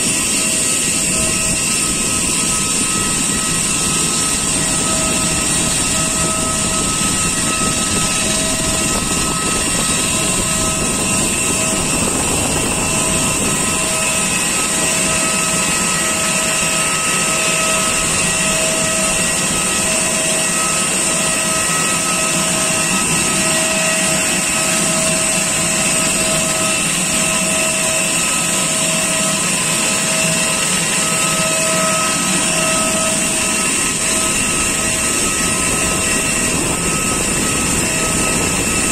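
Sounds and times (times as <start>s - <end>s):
jet aircraft engine whine: 0.0s - 38.9s.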